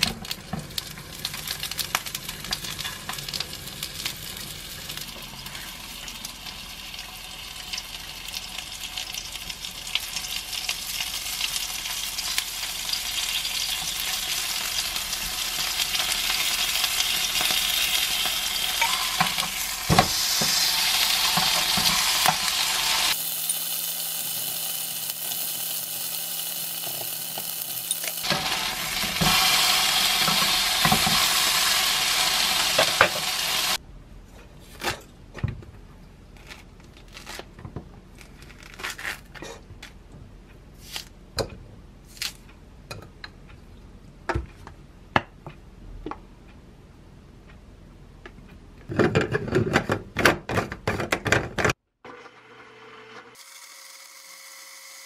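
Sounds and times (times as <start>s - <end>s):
skewers sizzling in a pan: 0.0s - 33.8s
orange being peeled by hand: 36.3s - 40.0s.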